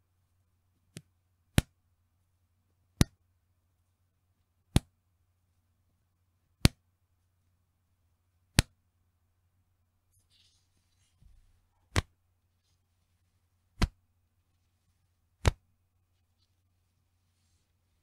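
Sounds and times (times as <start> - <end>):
elastic band snapping: 0.9 - 1.7, 6.6 - 6.8, 11.9 - 12.1, 13.8 - 14.0, 15.4 - 15.6.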